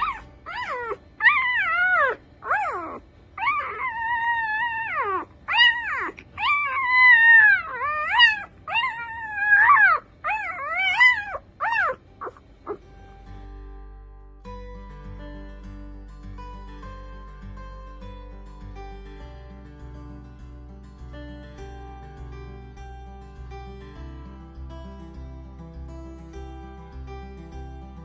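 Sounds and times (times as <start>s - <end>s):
puppy crying squeals: 0.0s - 12.9s.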